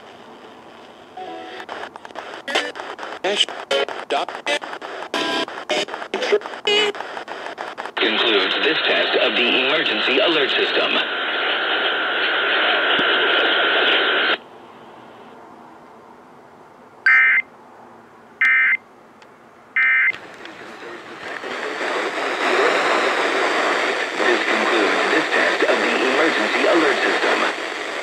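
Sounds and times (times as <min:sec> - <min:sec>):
radio hiss: 0:00.0 - 0:14.4, 0:20.2 - 0:28.0
radio programme audio: 0:00.0 - 0:14.4, 0:20.1 - 0:28.0
data tone bursts: 0:02.5 - 0:02.8, 0:03.7 - 0:07.0, 0:17.1 - 0:17.4.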